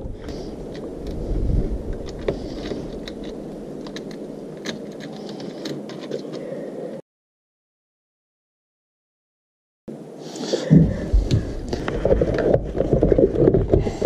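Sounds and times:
wire terminals clicking and rattling: 1.8s - 6.4s.

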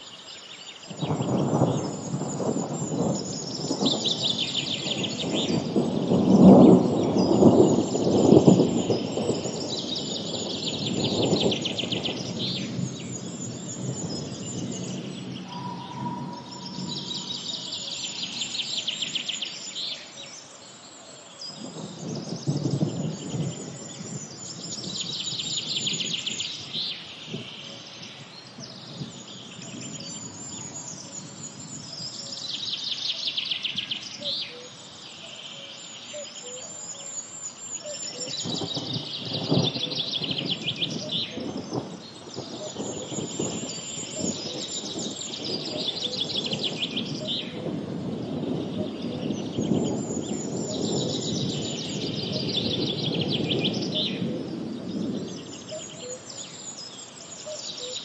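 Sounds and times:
bird trilling: 15.4s - 18.4s.

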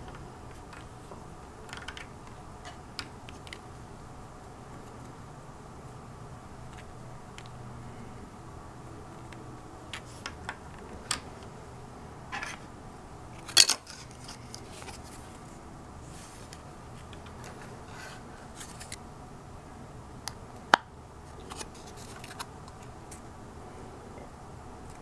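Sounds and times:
plastic parts clattering: 1.6s - 3.6s, 13.4s - 15.2s.

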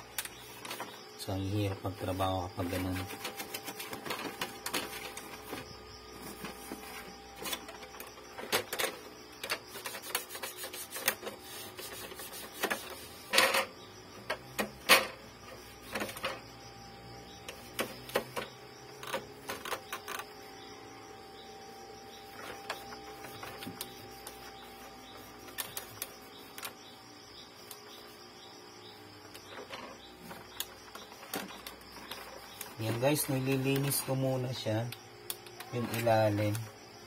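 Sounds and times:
faint steady hum: 0.0s - 37.0s
scraping rub: 9.4s - 13.6s, 22.0s - 28.3s.

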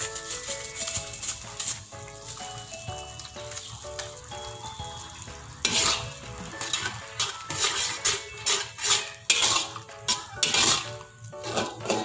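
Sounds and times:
soft background music: 0.0s - 12.0s
metal spatula scraping wok: 5.6s - 12.0s.

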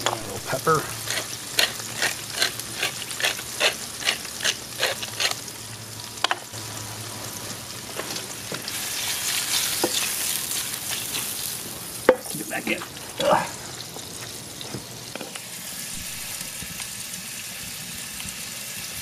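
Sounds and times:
pepper grinder grinding: 0.0s - 5.4s, 15.9s - 16.6s
mushrooms sizzling in skillet: 0.0s - 19.0s.

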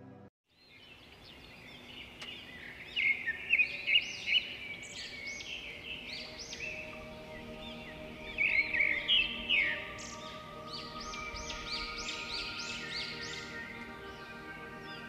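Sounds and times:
music: 0.0s - 0.3s, 5.4s - 15.0s
songbirds chirping and whistling: 0.5s - 15.0s.

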